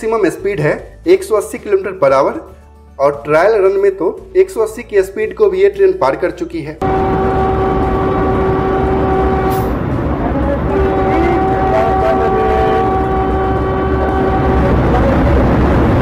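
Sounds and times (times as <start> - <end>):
train horn blasts: 6.8 - 16.0
train rumble on track: 6.8 - 16.0.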